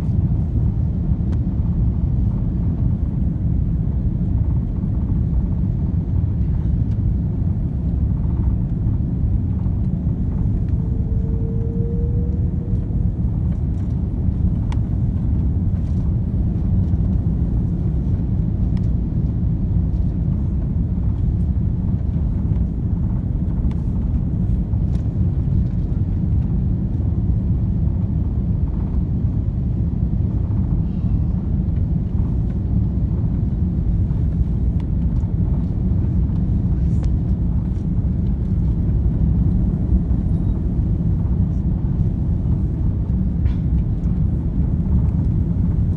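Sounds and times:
airplane engines rumbling: 0.0s - 45.9s
rushing air in cabin: 0.0s - 45.9s
faint rising tone: 10.6s - 13.5s.

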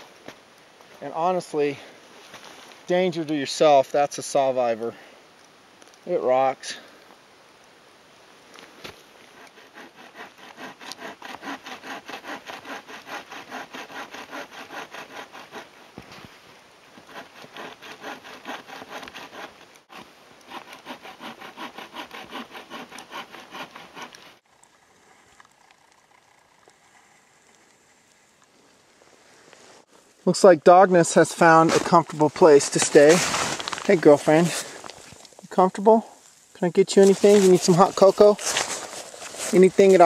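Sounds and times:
bow saw cutting log: 9.2s - 15.8s, 17.0s - 24.4s.

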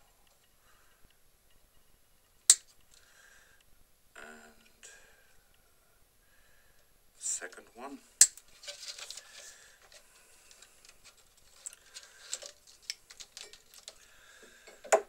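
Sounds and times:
light rustling: 8.4s - 14.7s.

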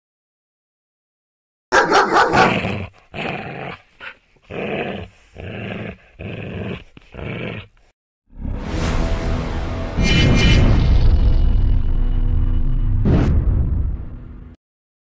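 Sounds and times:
dog growling: 1.8s - 7.9s.

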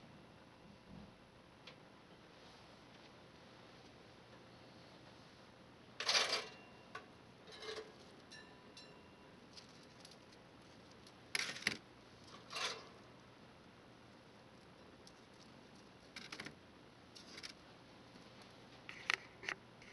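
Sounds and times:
toast scraping out of toaster: 6.0s - 6.6s, 11.4s - 13.0s.

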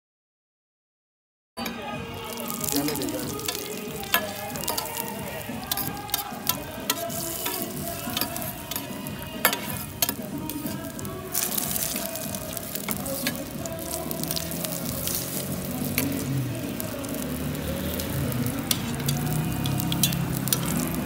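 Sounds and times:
paratha sizzling on griddle: 1.6s - 21.0s
metal spatula clinking on griddle: 2.7s - 12.0s, 18.4s - 20.9s.

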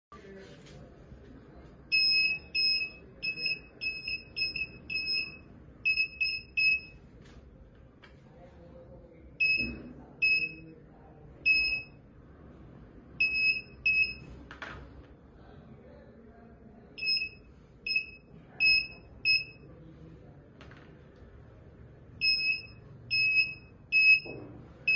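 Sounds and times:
metal detector beeps: 1.9s - 6.9s, 9.4s - 10.6s, 13.2s - 14.2s, 17.0s - 19.6s, 22.2s - 24.9s.

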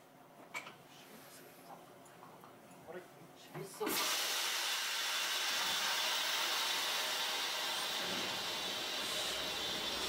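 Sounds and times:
steady hiss in streetcar cab: 3.9s - 10.0s.

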